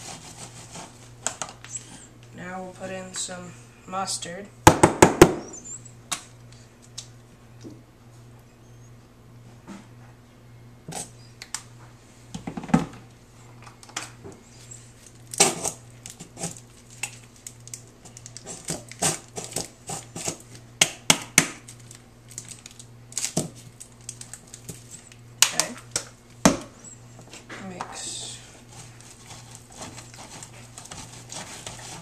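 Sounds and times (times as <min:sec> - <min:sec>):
plastic handling noise: 0:21.6 - 0:28.0.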